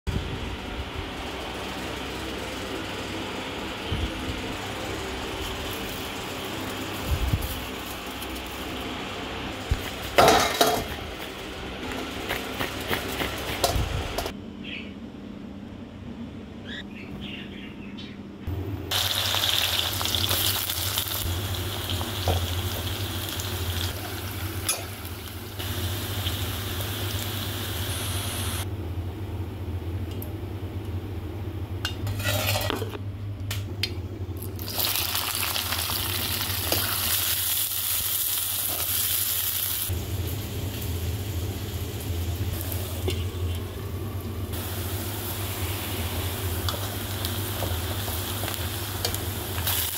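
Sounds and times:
vegetables sizzling in oil: 0.3s - 14.3s, 18.9s - 28.6s, 34.4s - 49.9s
low hum: 39.9s - 49.9s.

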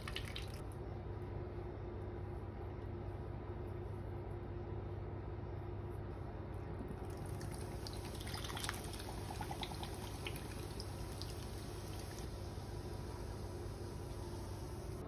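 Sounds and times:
beer pouring and fizzing: 0.0s - 0.6s, 7.0s - 15.0s
steady low hum: 0.0s - 15.0s.

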